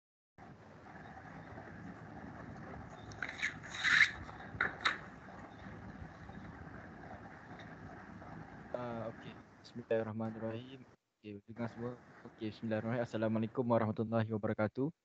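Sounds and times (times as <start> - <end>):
scraping rustle: 0.4 - 9.4
microphone hiss: 0.4 - 14.4.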